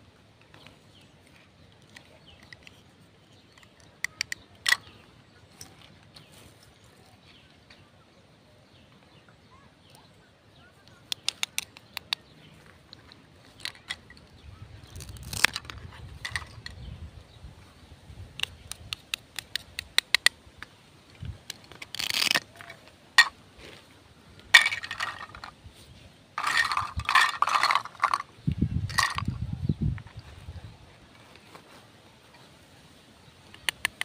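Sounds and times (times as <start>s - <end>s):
light plastic clicks: 10.8s - 16.8s, 18.4s - 23.3s, 33.5s - 34.0s
hook-and-loop pads ripping apart: 15.0s - 15.8s, 21.5s - 22.8s.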